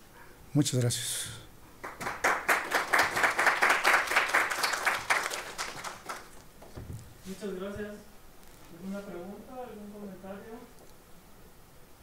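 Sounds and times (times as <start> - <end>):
audience applauding: 1.8 - 6.4.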